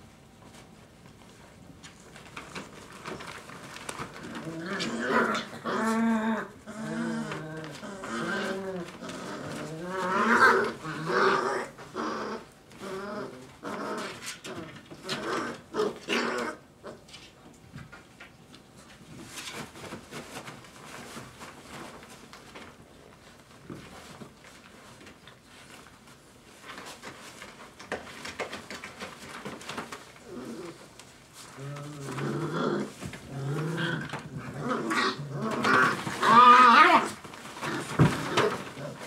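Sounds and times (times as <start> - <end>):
puppies scuffling: 0.0 - 39.0
puppies play-growling: 1.2 - 39.0
puppy whining: 30.2 - 39.0.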